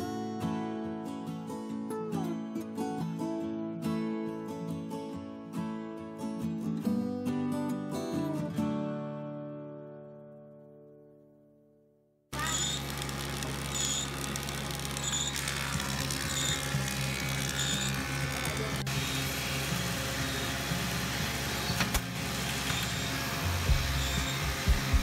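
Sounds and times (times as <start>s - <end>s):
workshop machine hum: 12.4s - 25.0s.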